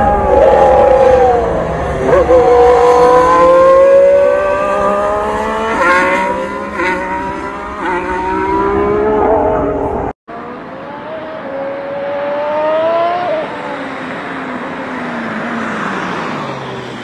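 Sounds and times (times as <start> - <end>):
racing car engine revving: 0.0 - 13.5.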